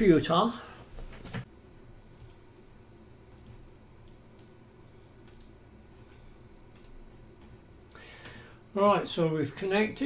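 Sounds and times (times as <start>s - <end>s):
low steady hum: 0.0s - 10.0s
computer mouse clicks: 2.2s - 2.4s, 3.3s - 4.6s, 5.2s - 7.0s.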